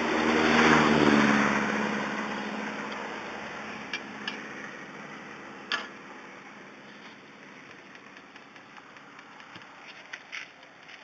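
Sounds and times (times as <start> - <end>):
vehicle engine passing: 0.0 - 9.9.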